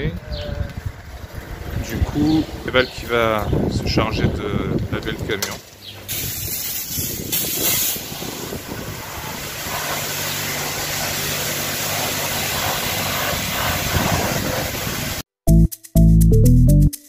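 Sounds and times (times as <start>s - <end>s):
pressure washer spraying hiss: 6.0s - 15.2s.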